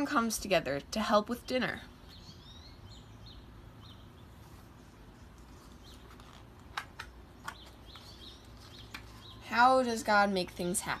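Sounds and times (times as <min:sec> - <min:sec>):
book pages rustling: 0:04.5 - 0:09.3.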